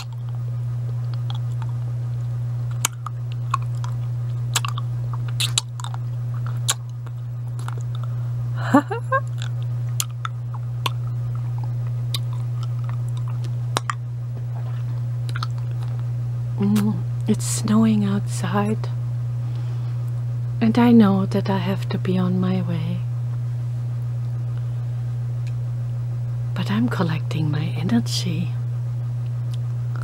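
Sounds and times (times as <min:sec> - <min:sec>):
mouth clicks and wet smacks: 0:00.0 - 0:00.4, 0:02.7 - 0:08.1, 0:09.2 - 0:16.0
steady low hum: 0:00.0 - 0:30.0
person humming: 0:08.5 - 0:09.4.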